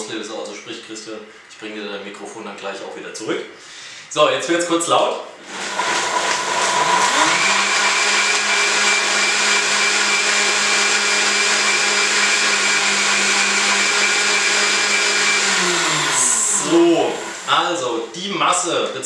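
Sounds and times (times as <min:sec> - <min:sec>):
blender running: 0:05.4 - 0:18.0.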